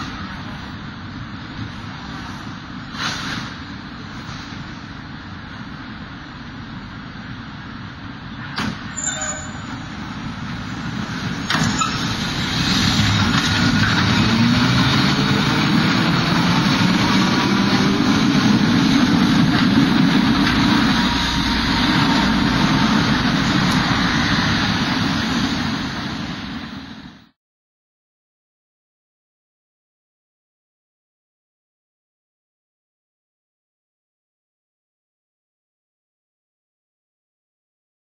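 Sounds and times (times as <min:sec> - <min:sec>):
electric tram running: 0:00.0 - 0:27.3.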